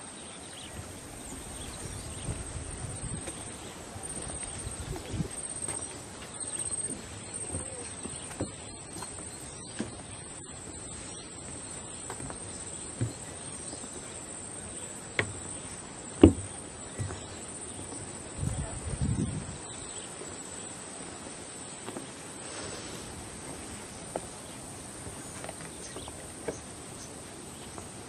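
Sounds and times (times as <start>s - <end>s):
faint outdoor background noise: 0.0s - 28.0s
insects chirring: 0.6s - 27.9s
knocks: 16.2s - 17.2s.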